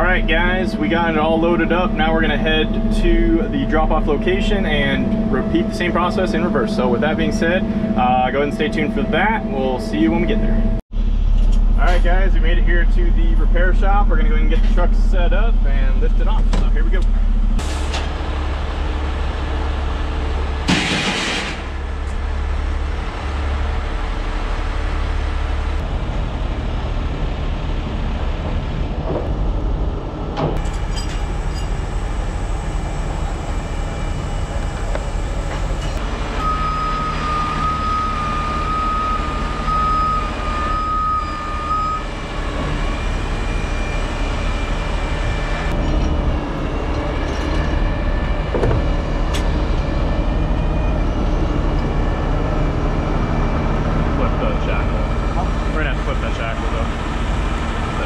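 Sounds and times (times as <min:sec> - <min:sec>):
diesel truck engine running: 0:00.0 - 0:58.0
high backup alarm beeps: 0:36.3 - 0:45.8.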